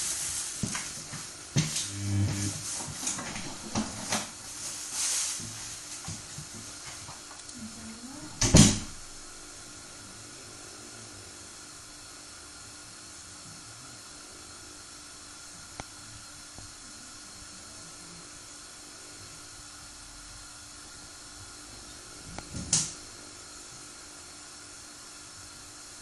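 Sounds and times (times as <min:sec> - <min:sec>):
light hum: 0:00.0 - 0:11.6
faint steady hiss: 0:00.0 - 0:26.0.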